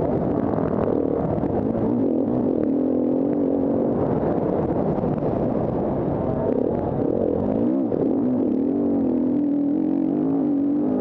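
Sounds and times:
motorcycle engine under throttle: 0.0s - 11.0s.

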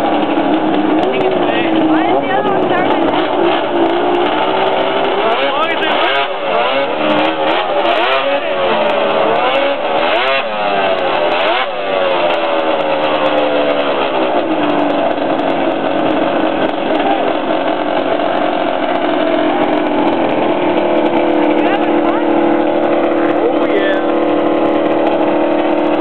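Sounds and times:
snowmobile engine revving: 0.0s - 26.0s.

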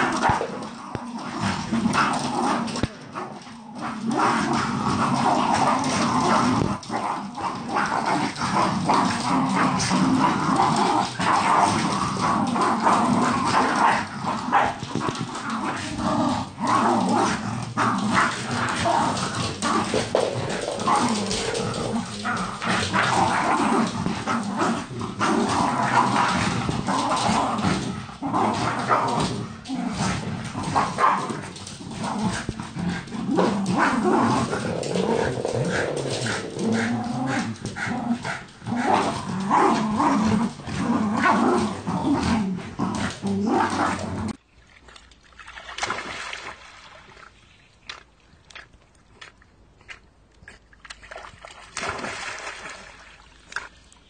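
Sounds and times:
dogs growling and barking: 0.0s - 44.4s.

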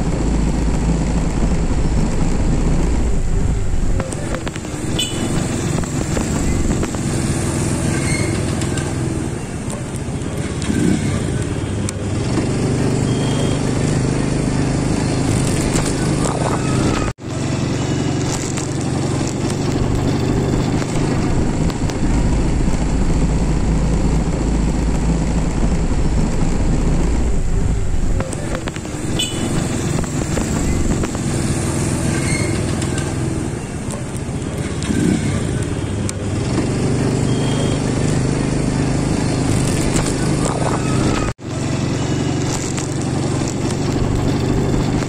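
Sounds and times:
wind rumble on microphone: 0.0s - 7.4s, 14.9s - 17.2s, 18.4s - 31.6s, 38.4s - 41.4s
small vehicle engine running: 0.0s - 45.0s.

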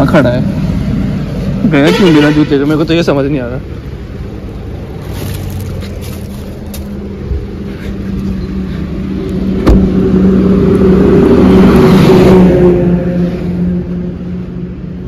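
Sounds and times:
car engine humming: 0.0s - 15.0s
loud rushing noise: 8.8s - 14.3s.

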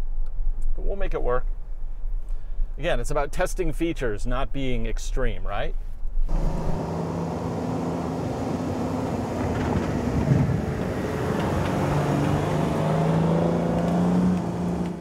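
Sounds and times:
truck engine running: 6.3s - 15.0s.

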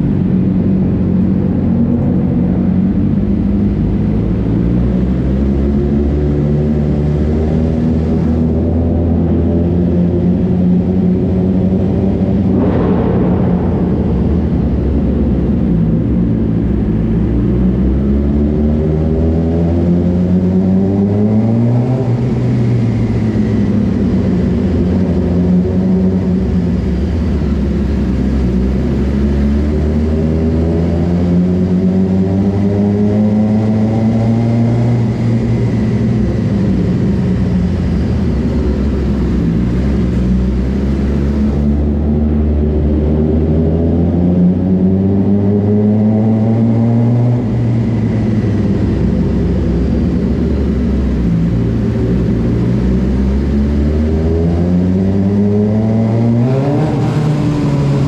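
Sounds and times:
short sharp noise: 12.5s - 16.6s
motorcycle engine revving: 29.9s - 58.0s.

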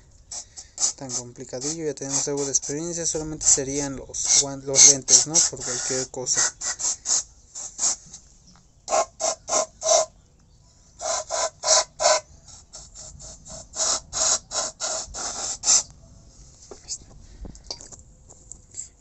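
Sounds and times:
aerosol spray hissing: 0.3s - 3.6s, 4.2s - 8.2s, 11.0s - 15.9s.

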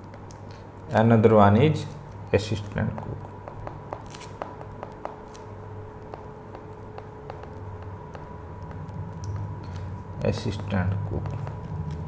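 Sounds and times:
low background hum: 0.0s - 12.0s
stylus tapping on tablet screen: 2.8s - 12.0s.

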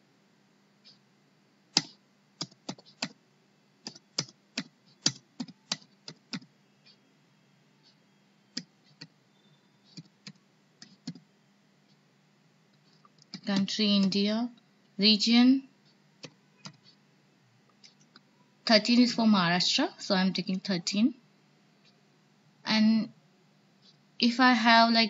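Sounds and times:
typing on computer keyboard: 1.8s - 3.2s, 3.8s - 6.5s, 8.5s - 9.2s, 9.8s - 11.3s, 12.9s - 14.2s, 16.2s - 17.0s.

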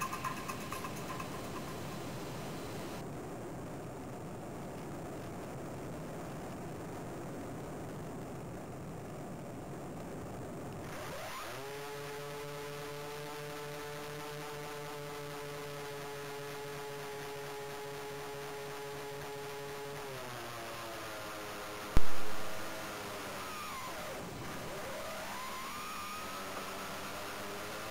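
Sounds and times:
model plane motor whine: 10.9s - 27.9s.

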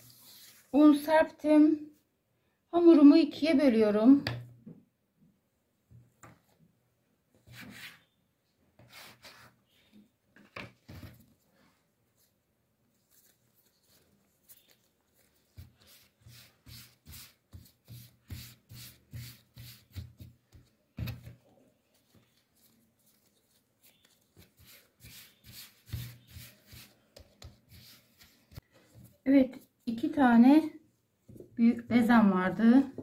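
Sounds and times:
hands rubbing and patting dough: 11.1s - 30.2s.

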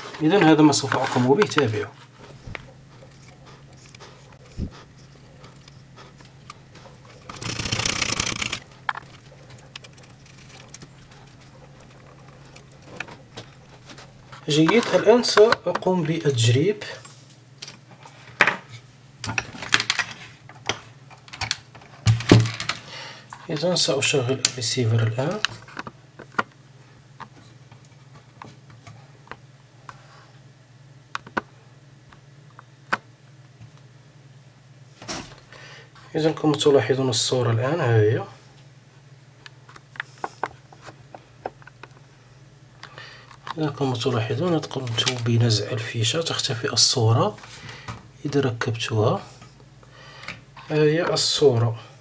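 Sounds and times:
crackling rustle of wire handling: 0.0s - 15.2s
steady low hum: 0.0s - 52.0s.

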